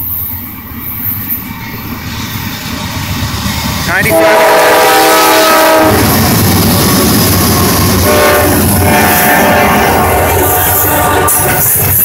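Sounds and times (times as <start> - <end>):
rumble of locomotive engines and wheels: 0.0 - 12.0
train horn chord: 4.0 - 11.8.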